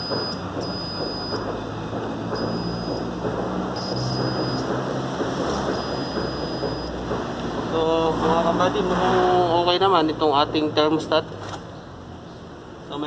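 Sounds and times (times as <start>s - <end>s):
multimeter short high beeps: 0.0s - 1.6s, 2.3s - 3.2s, 3.8s - 4.8s, 5.7s - 7.0s
steady rushing background noise: 0.0s - 13.0s.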